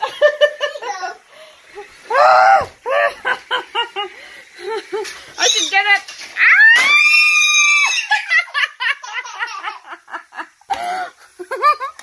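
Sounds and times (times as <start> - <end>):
toddler squealing: 6.4 - 8.3.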